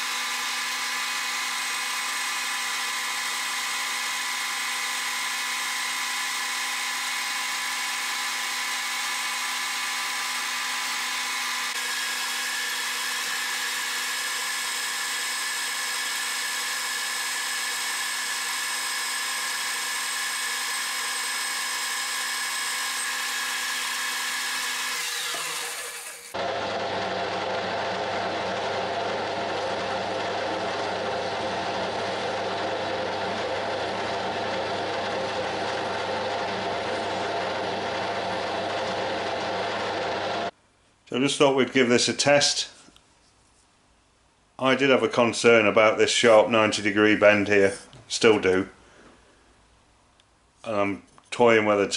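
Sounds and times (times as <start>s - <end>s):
lathe whining: 0.0s - 40.5s.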